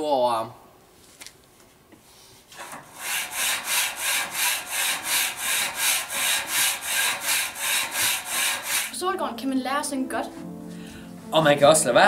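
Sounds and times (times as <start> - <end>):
fast rhythmic rasping: 3.0 - 9.0.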